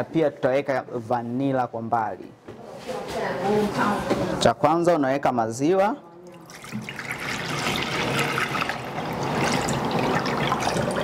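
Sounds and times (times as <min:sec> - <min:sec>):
milk pouring into bowl: 0:06.3 - 0:11.0
milk splashing: 0:06.3 - 0:11.0.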